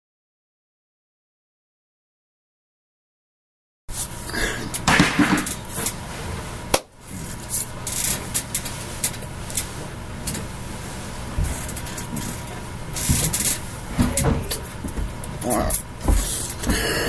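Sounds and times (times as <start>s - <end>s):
hand and clothing rustles and taps: 16.0s - 16.8s.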